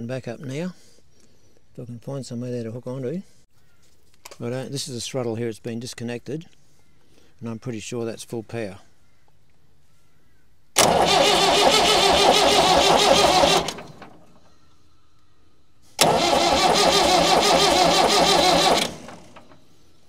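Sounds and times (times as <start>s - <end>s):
starter motor cranking diesel engine: 10.8s - 14.4s, 16.0s - 19.7s.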